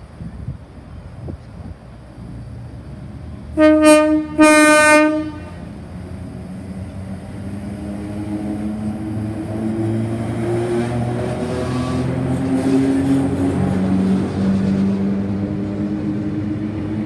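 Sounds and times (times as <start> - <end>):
rumble of moving carriages: 0.0 - 17.0
train horn blasts: 3.6 - 5.8.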